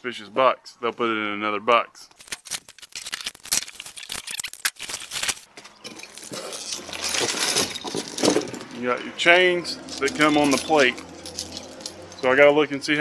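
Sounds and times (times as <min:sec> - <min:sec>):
paper packing rustling: 0:02.2 - 0:08.5.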